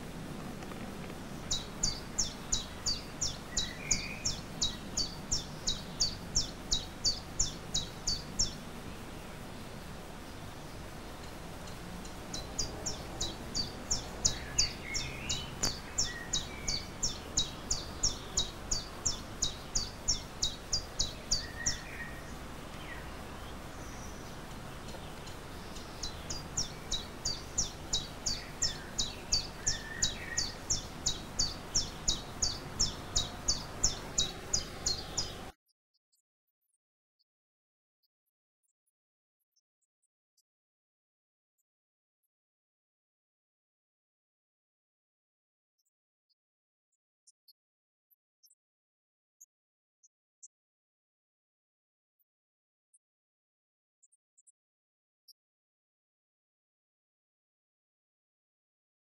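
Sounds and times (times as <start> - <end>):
other birds chirping: 0.0 - 35.5
low steady background: 0.0 - 35.6.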